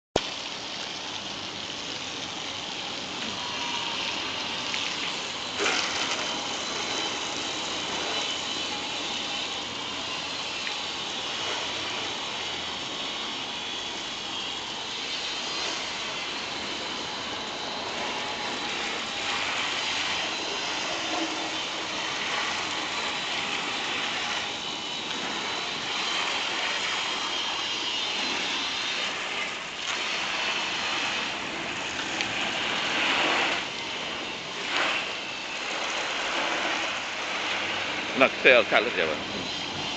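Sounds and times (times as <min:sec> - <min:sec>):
pressure washer spraying water: 0:00.2 - 0:39.9.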